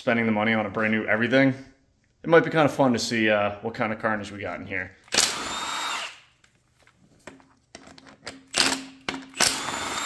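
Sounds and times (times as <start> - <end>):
cordless power driver spinning: 5.1 - 6.2, 8.6 - 10.0.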